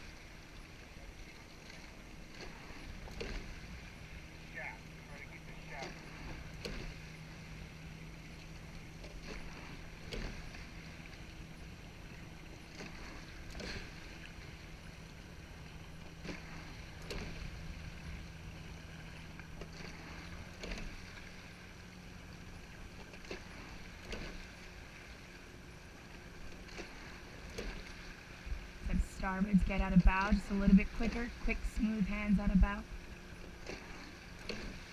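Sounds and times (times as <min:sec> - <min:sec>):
oars clunking in oarlocks: 0:00.0 - 0:34.9
water washing along hull: 0:00.0 - 0:34.9.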